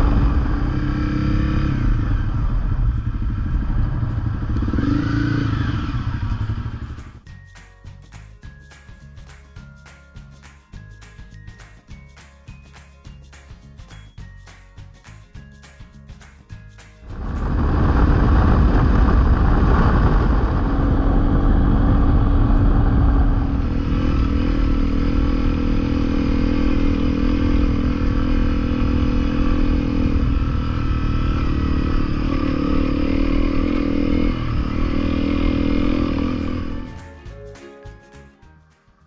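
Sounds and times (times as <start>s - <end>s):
motorcycle engine running: 0.0s - 7.3s, 17.0s - 37.2s
loud rushing noise: 17.1s - 37.0s.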